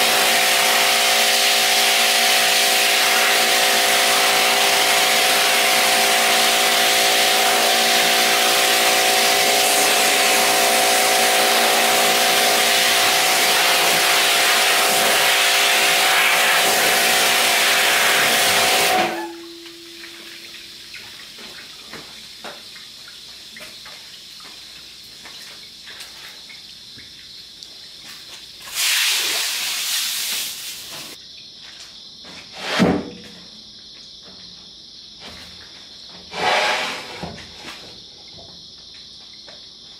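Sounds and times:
pressure washer spraying hiss: 0.0 - 20.5, 28.6 - 31.2
pump motor hum: 0.0 - 31.2.

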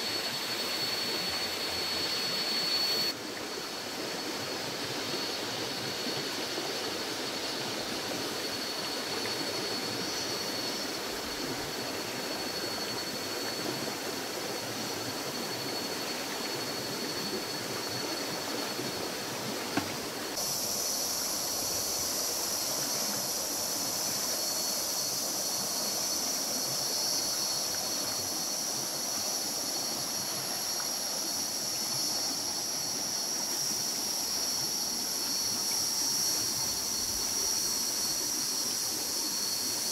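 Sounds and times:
high-pitched insect drone: 0.0 - 39.9
shrill insect drone: 0.0 - 39.9
steady hiss: 0.0 - 39.9.

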